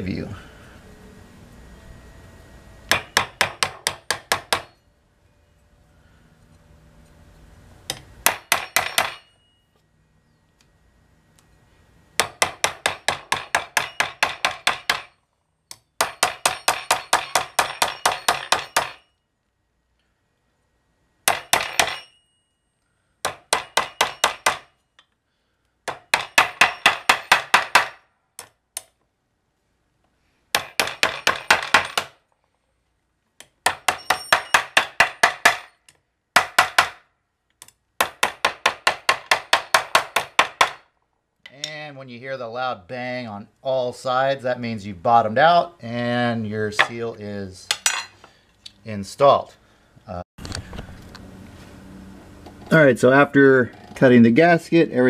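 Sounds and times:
small hammer tapping metal: 0:23.3 - 0:25.2, 0:33.4 - 0:36.9.

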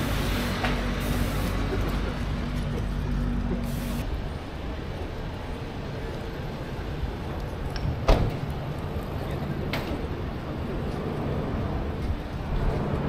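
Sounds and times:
pedestrians: 0:00.0 - 0:13.0
traffic hum: 0:00.0 - 0:13.0.

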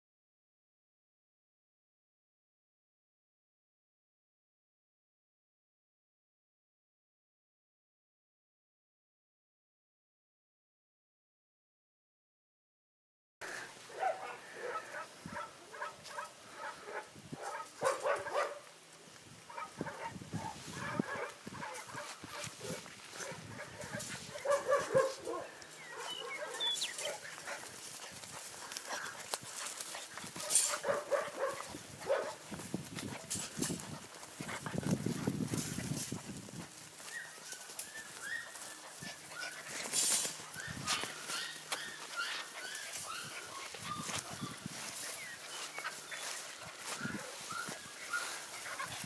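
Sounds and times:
puppies yipping and whining: 0:23.8 - 0:32.3, 0:36.9 - 0:49.0.

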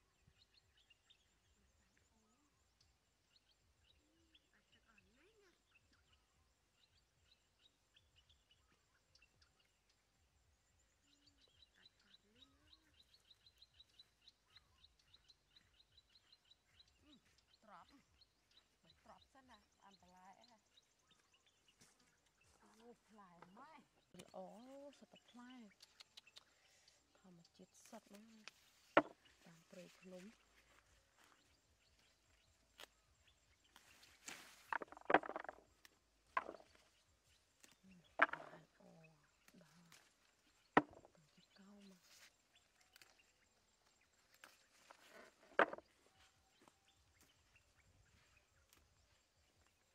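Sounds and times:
leaves and twigs rustling: 0:27.8 - 0:49.9.

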